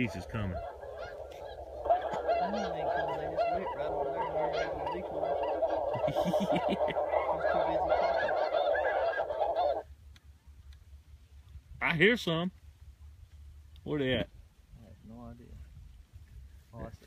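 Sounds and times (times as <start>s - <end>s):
geese honking: 0.0s - 9.8s.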